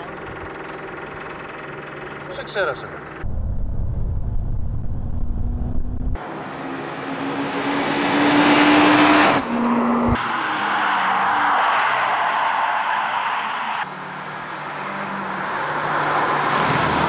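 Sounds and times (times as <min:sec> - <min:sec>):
low rumble: 0:03.2 - 0:06.2
car accelerating past: 0:05.5 - 0:10.6.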